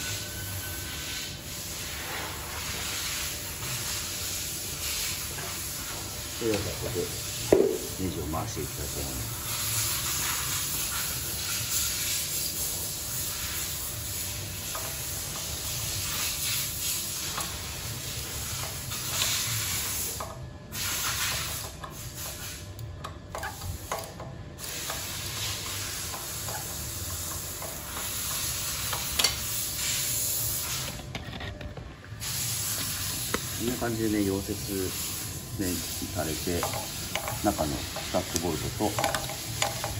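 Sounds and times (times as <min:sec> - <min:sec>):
steady hiss: 0:00.0 - 0:22.6, 0:23.4 - 0:31.0, 0:32.1 - 0:39.9
wrench clicking and scraping: 0:36.6 - 0:39.9.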